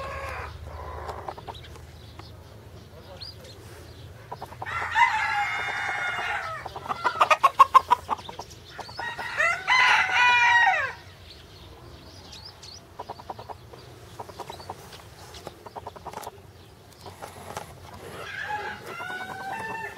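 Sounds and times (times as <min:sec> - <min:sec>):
rooster crowing: 0:00.0 - 0:01.1, 0:04.6 - 0:07.4, 0:09.0 - 0:11.0, 0:18.1 - 0:19.9
chicken clucking: 0:00.0 - 0:10.2, 0:11.7 - 0:19.9.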